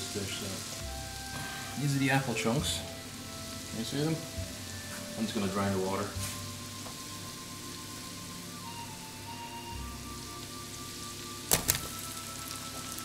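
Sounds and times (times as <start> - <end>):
shallots sizzling in butter: 0.0 - 13.0
apple chunks clattering into pan: 11.5 - 12.0.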